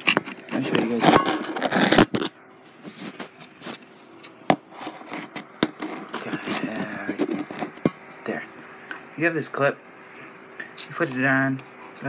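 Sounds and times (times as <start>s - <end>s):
fingers rubbing on phone: 2.8s - 7.9s.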